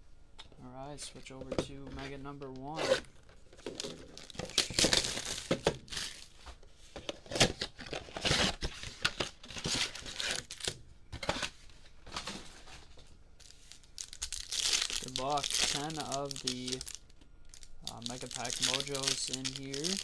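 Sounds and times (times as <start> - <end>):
packs crinkling: 3.6 - 6.3, 7.2 - 11.4, 12.1 - 20.0.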